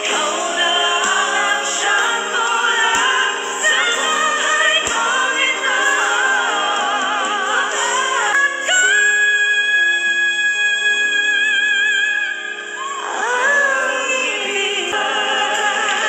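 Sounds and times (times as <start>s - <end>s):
group singing in harmony: 0.0s - 9.1s, 12.3s - 16.0s
live musical backing: 0.0s - 16.0s.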